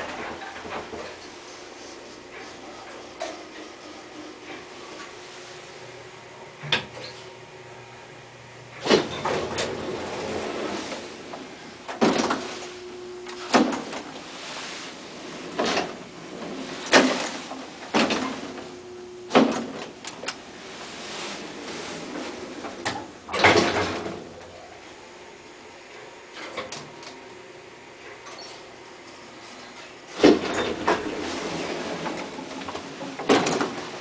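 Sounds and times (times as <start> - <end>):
elevator doors opening and closing: 0.0 - 1.5, 8.7 - 24.9, 28.0 - 28.7, 29.3 - 34.0.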